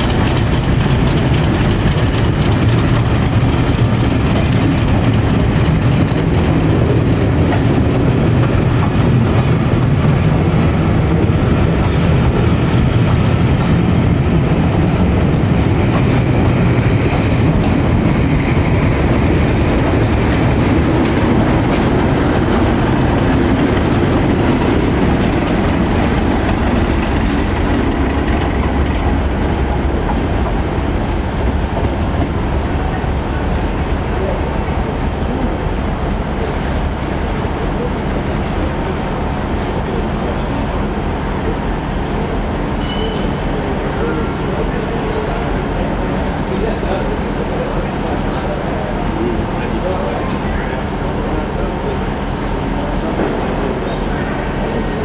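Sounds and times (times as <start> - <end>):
wheels clicking over rail joints: 0.0 - 10.0, 11.2 - 30.8
diesel locomotive engine running: 0.0 - 55.0.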